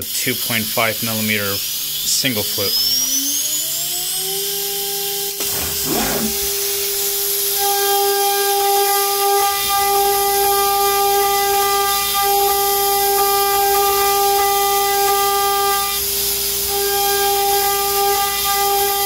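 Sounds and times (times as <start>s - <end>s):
router spindle whine: 0.0s - 19.0s
rough metal cutting: 5.2s - 17.5s.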